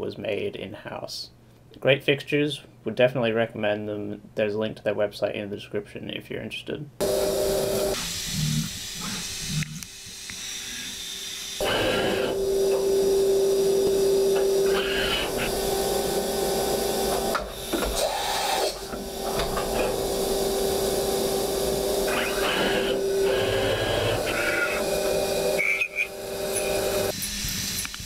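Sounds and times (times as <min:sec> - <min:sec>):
machine whine: 0:07.0 - 0:28.0
machine clunks: 0:18.9 - 0:20.1.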